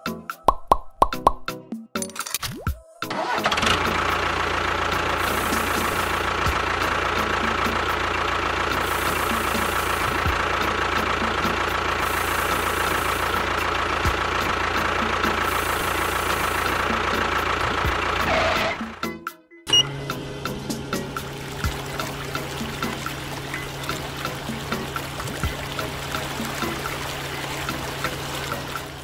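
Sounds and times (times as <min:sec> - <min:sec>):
small motor whining: 0:18.2 - 0:18.9.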